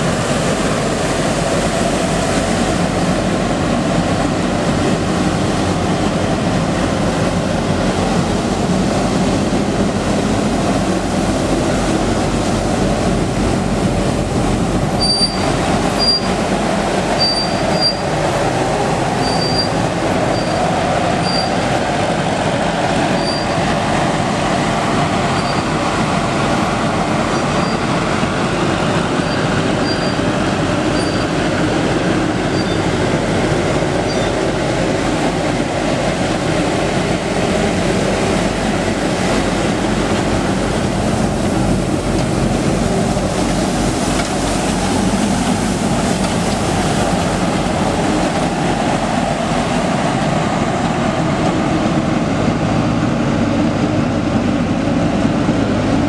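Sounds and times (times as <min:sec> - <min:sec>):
diesel engine and vacuum fan running: 0:00.0 - 0:56.0.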